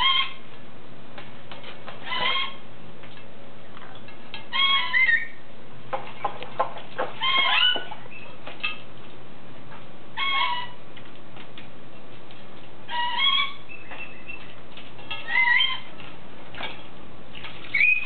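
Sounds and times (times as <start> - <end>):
parrot calling: 0.0 - 0.4, 2.0 - 2.6, 4.5 - 5.5, 7.1 - 8.8, 10.2 - 10.8, 12.8 - 16.0, 17.7 - 18.0.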